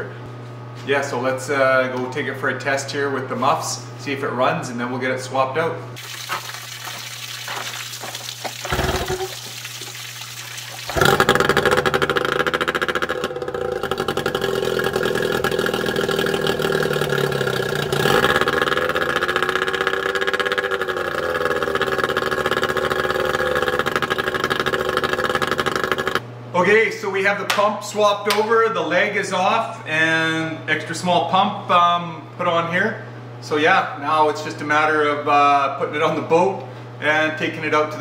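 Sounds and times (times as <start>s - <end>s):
outboard motor running: 6.0s - 26.2s.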